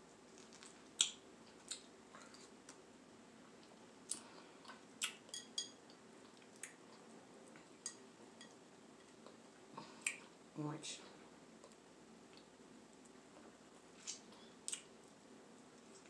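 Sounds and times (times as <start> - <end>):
fork tapping glass bowl: 5.3 - 5.8.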